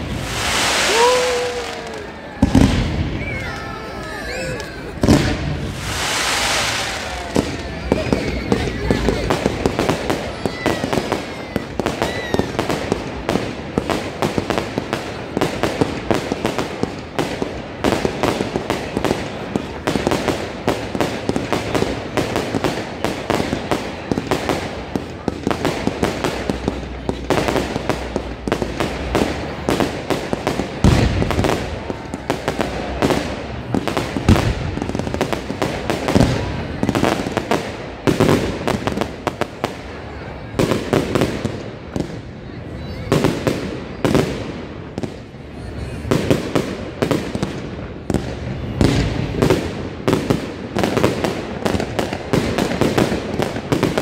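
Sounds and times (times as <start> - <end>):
heavy firework booms: 0.0 - 3.4, 4.9 - 42.3
fireworks bangs and crackles: 0.0 - 54.0.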